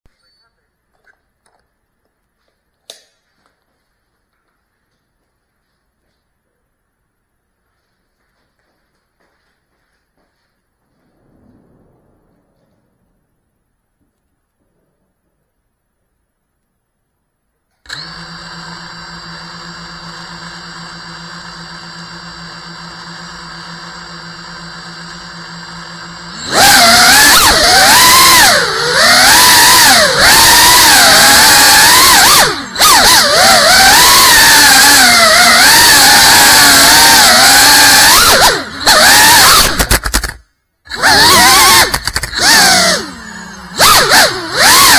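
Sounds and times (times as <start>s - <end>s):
drone propellers whining: 17.9s - 44.9s.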